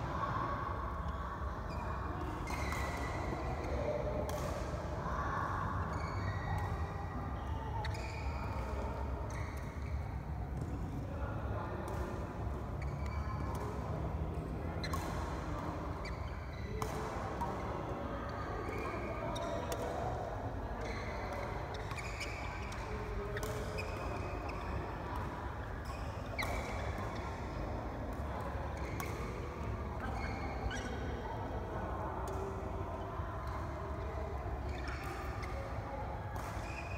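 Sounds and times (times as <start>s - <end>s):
rackets hitting shuttlecock: 2.2s - 7.0s, 11.9s - 17.7s, 18.7s - 20.2s, 21.3s - 31.0s, 32.2s - 32.6s, 33.4s - 36.9s
shoe squeaks: 5.9s - 6.6s, 7.8s - 8.6s, 21.7s - 24.7s, 25.9s - 27.0s, 30.0s - 31.0s, 34.7s - 35.6s.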